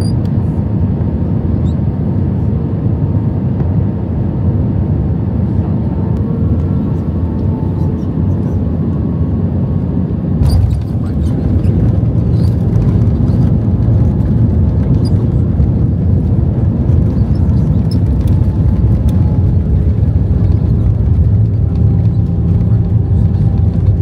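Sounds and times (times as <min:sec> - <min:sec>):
runway rollout rumble: 0:03.6 - 0:24.0
plane landing thump: 0:10.4 - 0:24.0.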